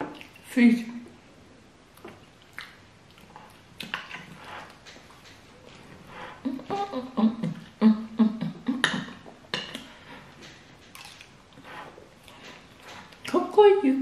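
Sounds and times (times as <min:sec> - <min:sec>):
woman making wordless hums: 0:06.5 - 0:09.2.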